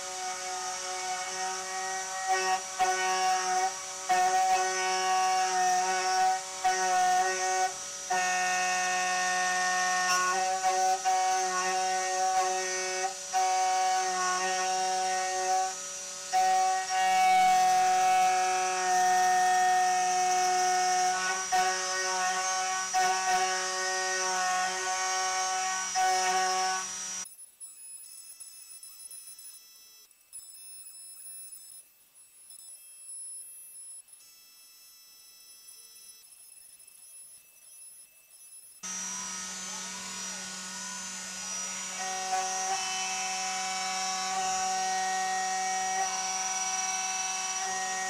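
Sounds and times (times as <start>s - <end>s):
milling spindle cutting metal: 0.0s - 27.2s, 38.8s - 48.0s.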